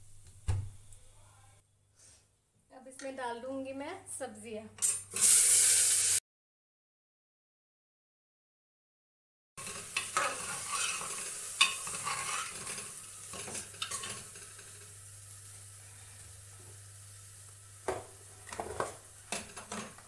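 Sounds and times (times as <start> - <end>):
vegetables sizzling in oil: 4.9 - 6.2, 9.6 - 20.0
metal ladle scraping pot: 9.6 - 14.6.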